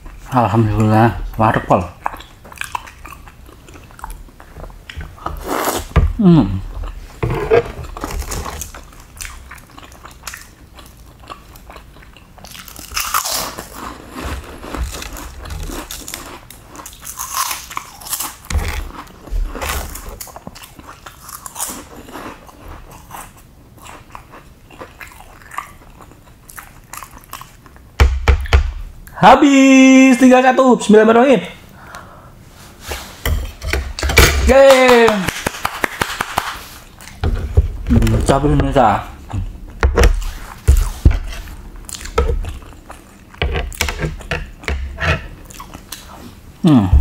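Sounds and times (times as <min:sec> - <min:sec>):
chewing and biting food: 0:01.8 - 0:06.0, 0:07.8 - 0:27.9, 0:40.2 - 0:46.4.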